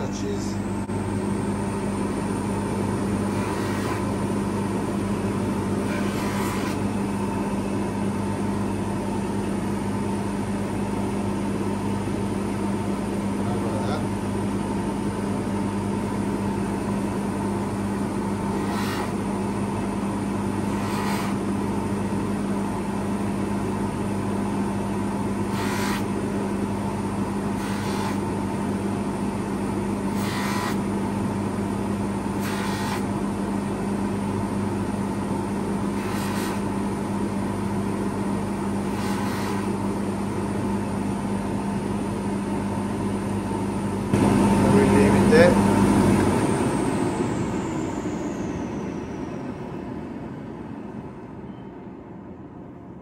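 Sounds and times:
polishing motor humming: 2.9s - 7.3s, 17.7s - 22.5s, 25.4s - 28.4s, 30.0s - 30.9s, 32.3s - 33.2s, 35.8s - 37.0s, 38.8s - 39.9s
hissing rubs on spinning mop: 3.3s - 4.1s, 5.9s - 6.8s, 18.5s - 19.2s, 20.7s - 21.4s, 25.5s - 26.1s, 27.6s - 28.3s, 30.1s - 30.8s, 32.4s - 33.1s, 36.0s - 36.7s, 38.9s - 39.7s.

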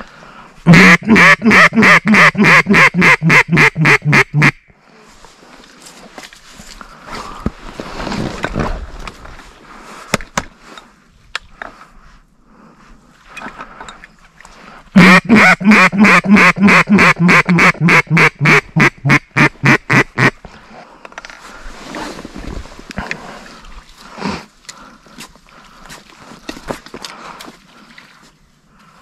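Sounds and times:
duck call quacks: 0.7s - 4.6s, 15.0s - 20.4s.

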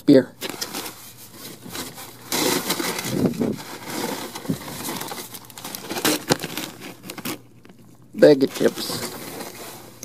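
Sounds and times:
paper and plastic bags crinkling: 0.4s - 10.0s.

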